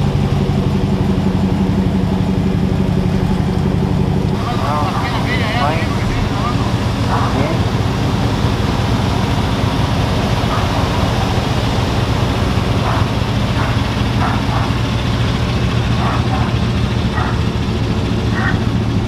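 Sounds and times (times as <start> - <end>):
truck engine idling: 0.0 - 19.0
faint voices talking: 4.3 - 7.9.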